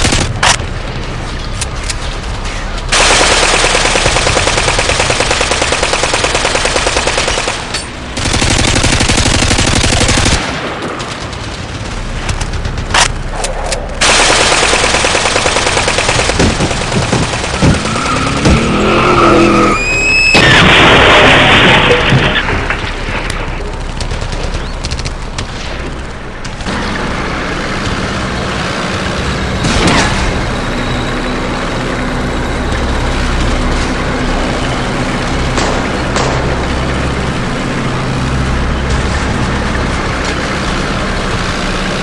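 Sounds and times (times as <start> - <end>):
rapid automatic gunfire: 2.9 - 13.2, 14.0 - 18.2.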